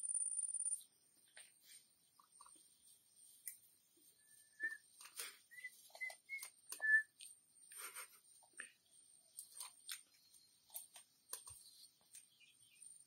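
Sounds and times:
high whistle-like chirps: 4.2s - 4.9s, 5.5s - 7.2s.

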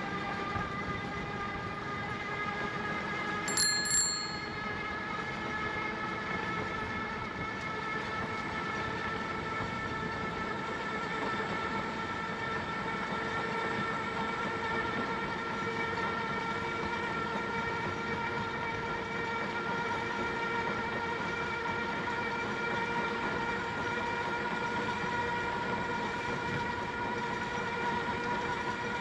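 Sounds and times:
bicycle bell ringing: 3.5s - 4.8s.

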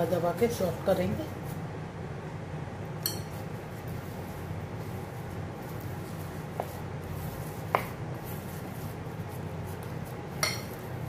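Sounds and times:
clinks against glass bowl: 3.0s - 3.3s, 10.4s - 10.8s
hands pressing dough: 5.6s - 11.0s.

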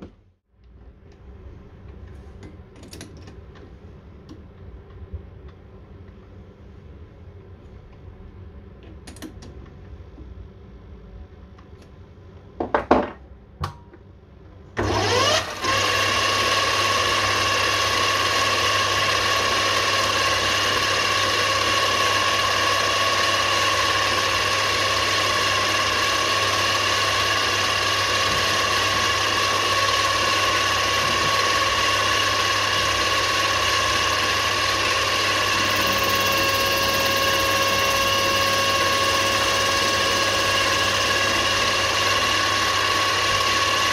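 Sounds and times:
lathe motor whining: 14.8s - 43.9s.

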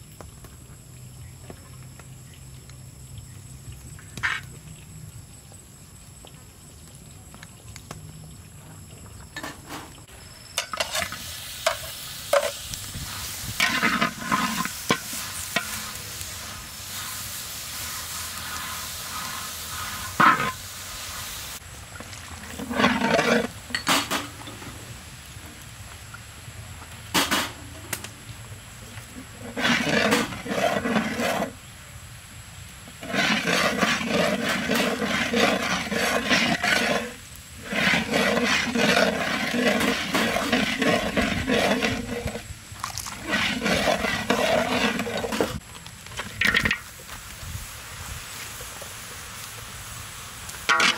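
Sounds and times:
metal spatula scraping wok: 10.6s - 21.2s, 22.5s - 24.3s, 29.3s - 31.6s, 33.0s - 42.5s, 43.1s - 45.6s, 50.7s - 50.9s.

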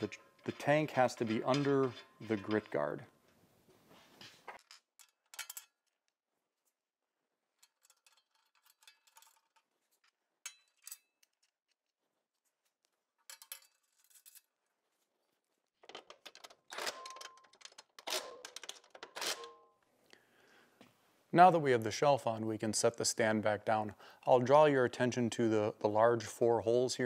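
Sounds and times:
metal clinks of bolts: 4.6s - 5.8s.

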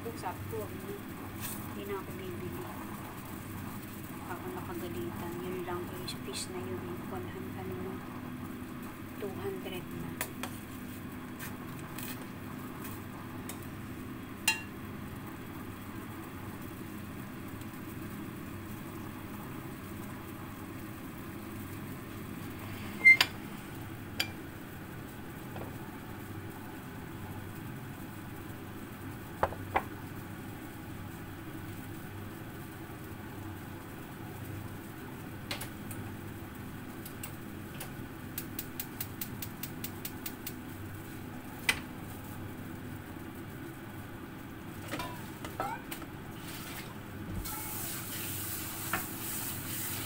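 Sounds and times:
low kitchen hum: 0.0s - 50.0s
utensils clinking against pots: 44.9s - 46.0s.

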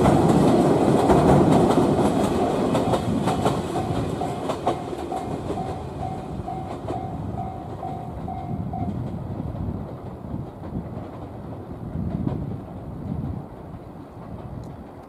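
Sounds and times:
train rumble: 0.0s - 15.0s
train wheels clicking over rail joints: 0.0s - 15.0s
level crossing warning bell: 2.2s - 9.0s.

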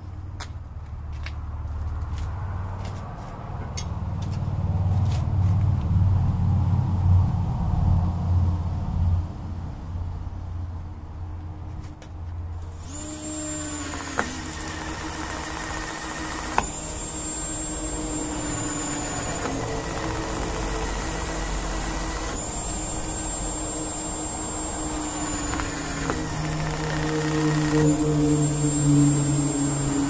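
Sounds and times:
electric drill boring rubber: 12.6s - 30.0s
drill bit clicks: 12.8s - 28.8s.

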